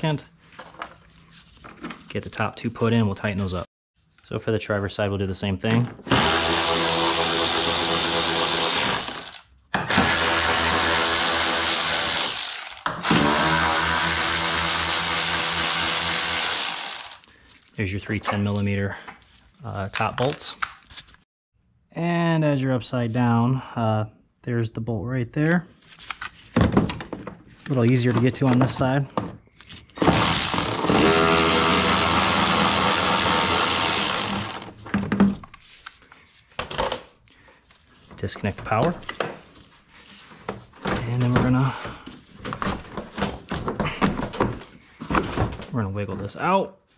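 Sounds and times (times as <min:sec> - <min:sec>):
electric ratchet running: 0:06.1 - 0:17.2, 0:30.0 - 0:34.8.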